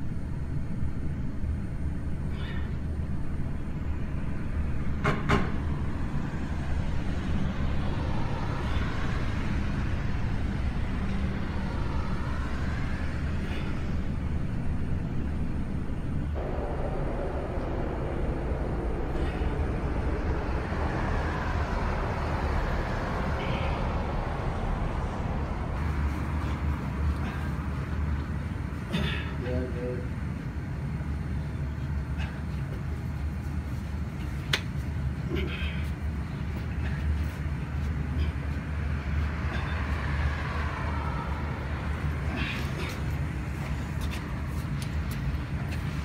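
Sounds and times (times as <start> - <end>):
road traffic rumbling: 0.0 - 46.0
vehicles passing by: 0.0 - 46.0.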